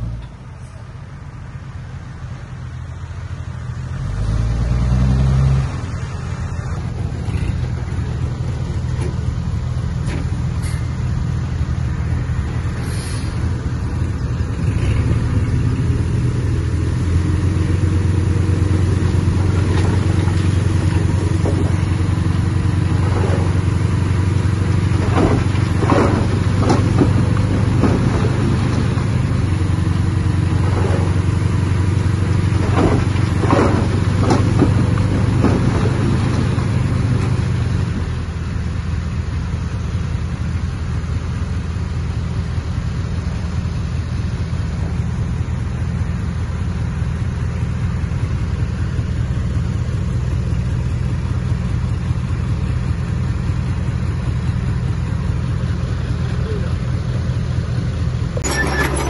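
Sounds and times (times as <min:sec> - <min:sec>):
heavy diesel engine under load: 0:00.0 - 0:59.0
short metallic clanks: 0:58.4 - 0:59.0.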